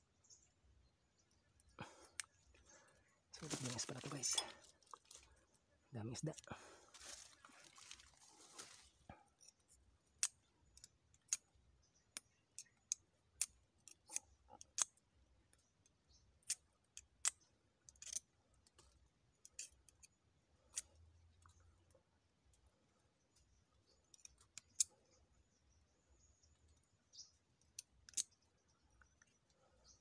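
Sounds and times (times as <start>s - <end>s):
hand tool metallic snips: 16.4s - 18.3s.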